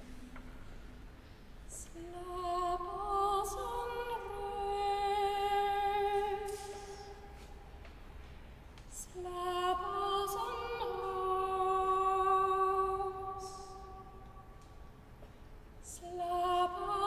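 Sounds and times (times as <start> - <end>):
woman singing a cappella lullaby: 1.7 - 7.3, 8.9 - 14.4, 15.8 - 17.0.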